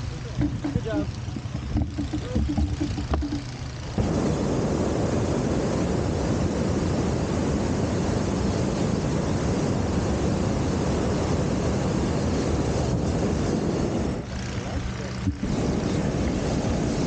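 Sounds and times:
propane burner blast: 0:00.0 - 0:17.0.

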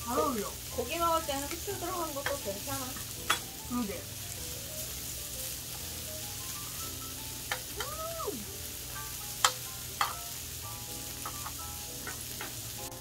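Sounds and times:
meat sizzling on a grill pan: 0:00.0 - 0:13.0
metal tongs clicking against pan: 0:01.2 - 0:03.5, 0:07.4 - 0:08.0, 0:09.4 - 0:10.3, 0:11.2 - 0:12.6.

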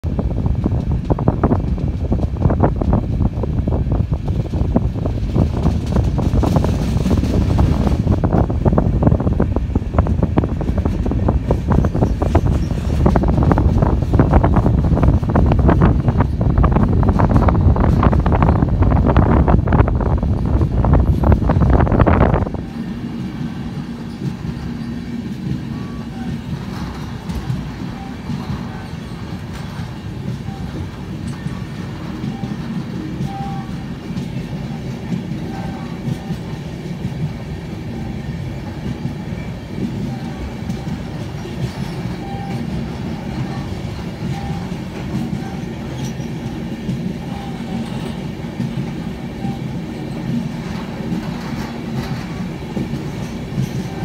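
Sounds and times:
train wheels rumbling on rail: 0:00.0 - 0:54.0.

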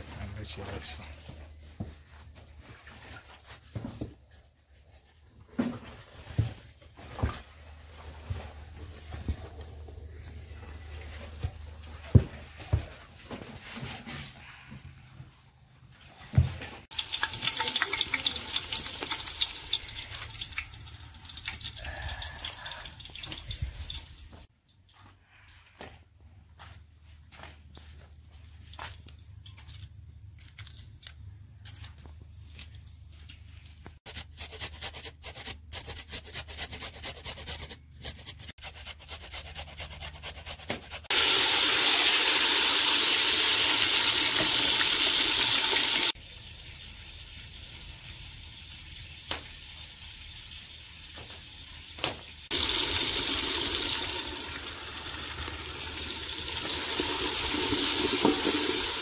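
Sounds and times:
sizzling hiss of frying: 0:16.9 - 0:24.5, 0:41.1 - 0:59.0.

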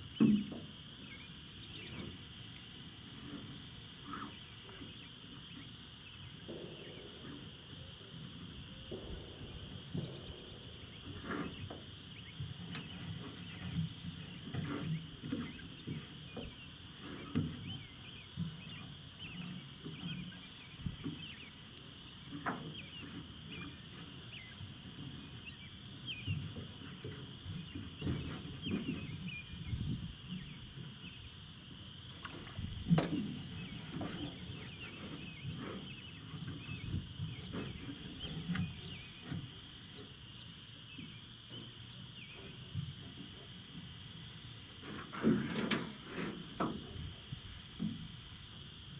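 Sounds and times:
low rumbling: 0:06.4 - 0:12.6.

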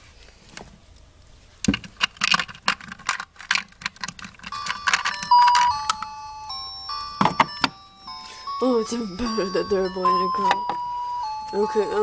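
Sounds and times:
plastic toys clattering: 0:01.6 - 0:06.1
electronic toy beeping tune: 0:04.5 - 0:12.0.

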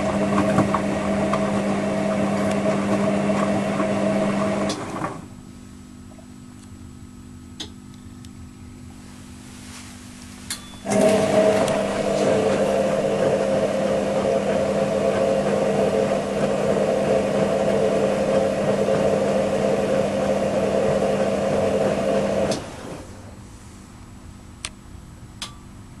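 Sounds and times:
washing machine running: 0:00.0 - 0:06.4, 0:09.0 - 0:23.5
faint hum: 0:05.2 - 0:14.4.

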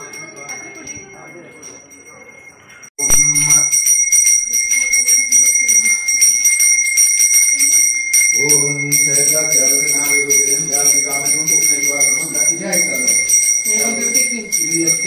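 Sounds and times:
hand bell ringing: 0:00.0 - 0:15.0
low voice chanting: 0:08.3 - 0:15.0.

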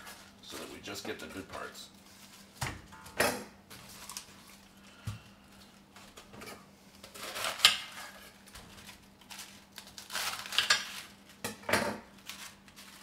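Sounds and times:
lettuce leaves crunching: 0:08.7 - 0:11.2.

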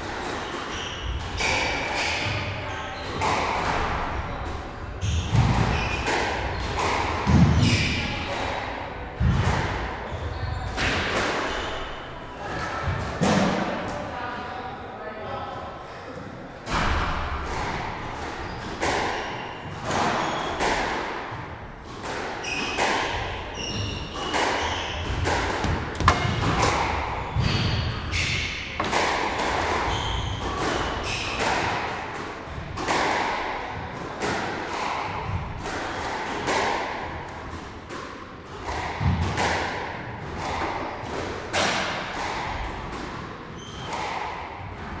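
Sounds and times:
squash ball hollow thuds: 0:18.8 - 0:31.8
shoes squeaking on wooden floor: 0:23.6 - 0:31.2
racket strikes: 0:24.1 - 0:31.9.

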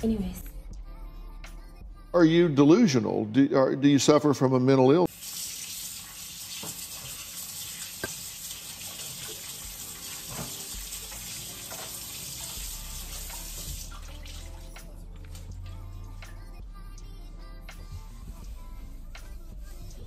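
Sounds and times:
tap running into a sink: 0:06.3 - 0:14.5.

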